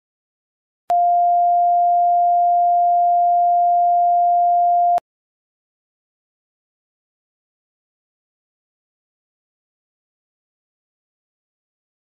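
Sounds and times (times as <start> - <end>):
electronic sine test tone: 0.9 - 5.0.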